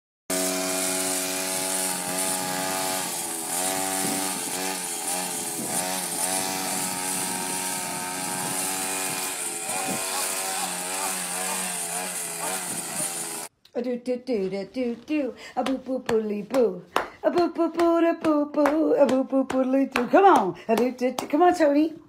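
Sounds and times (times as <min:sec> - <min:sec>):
brush cutter engine running: 0:00.3 - 0:13.5.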